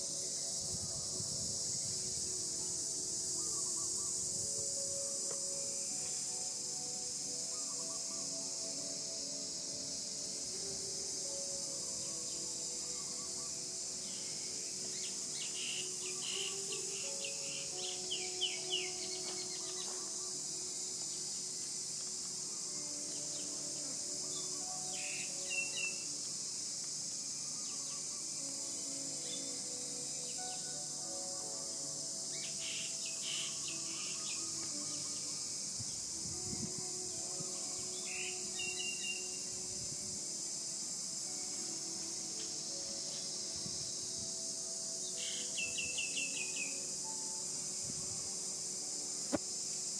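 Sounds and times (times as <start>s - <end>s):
high-pitched insect drone: 0.0s - 49.9s.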